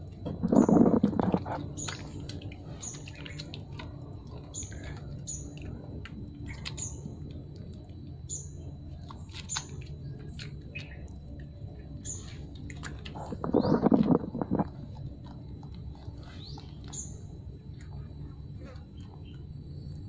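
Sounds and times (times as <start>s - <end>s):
bird chirping: 8.2s - 8.7s, 12.0s - 12.4s, 13.2s - 14.7s, 16.2s - 17.3s.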